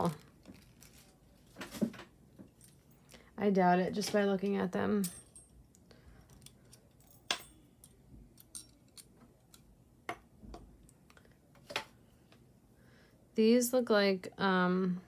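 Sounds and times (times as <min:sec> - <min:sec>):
small metal rings clinking: 0:04.9 - 0:09.2.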